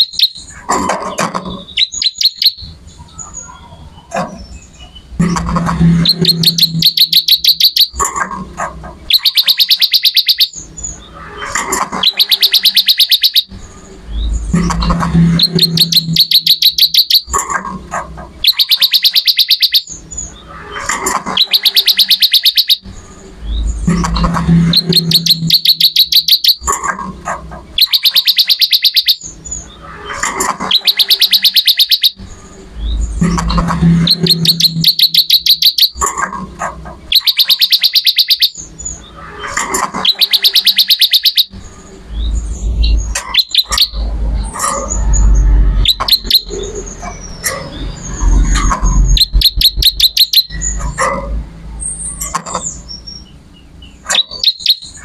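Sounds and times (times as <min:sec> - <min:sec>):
bird singing high trills: 0:00.0 - 0:00.6, 0:01.6 - 0:05.2, 0:05.8 - 0:08.0, 0:09.1 - 0:13.5, 0:14.1 - 0:17.4, 0:18.4 - 0:26.7, 0:27.8 - 0:36.0, 0:37.1 - 0:44.1, 0:44.7 - 0:50.8, 0:51.8 - 0:55.0.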